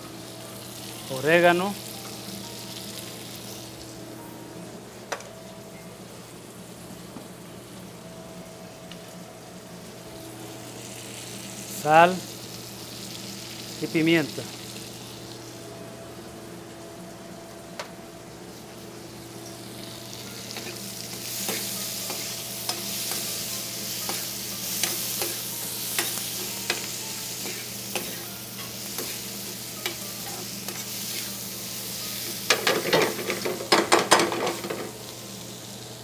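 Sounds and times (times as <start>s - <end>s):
food sizzling in a frying pan: 0.0s - 4.4s, 6.0s - 36.0s.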